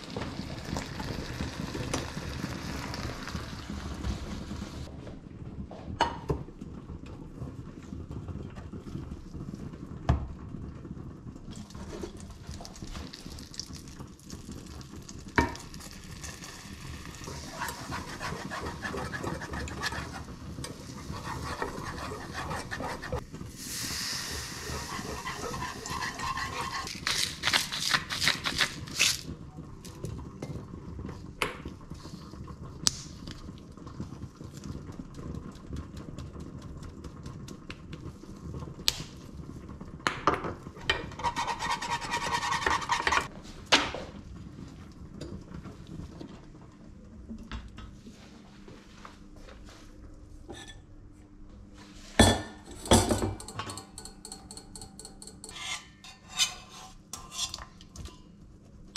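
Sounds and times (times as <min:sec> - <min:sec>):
metal whisk scraping a pan: 0:17.3 - 0:23.2, 0:24.4 - 0:28.8, 0:41.0 - 0:43.3, 0:52.8 - 0:57.8
cookware clanking: 0:52.2 - 0:58.2.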